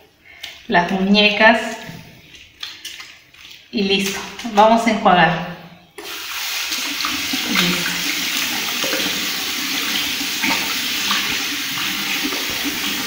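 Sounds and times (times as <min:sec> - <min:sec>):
water splashing over hands: 0:02.2 - 0:04.6, 0:07.0 - 0:09.2
tap water running: 0:06.0 - 0:13.0.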